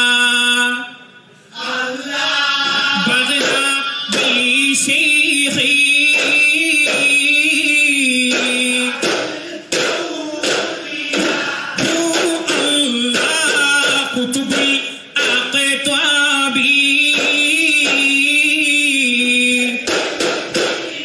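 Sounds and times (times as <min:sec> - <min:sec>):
voices singing together: 0:01.4 - 0:21.0.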